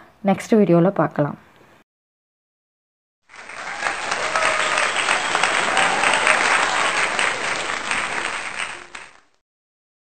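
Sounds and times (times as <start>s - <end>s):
crowd clapping: 3.3s - 9.4s.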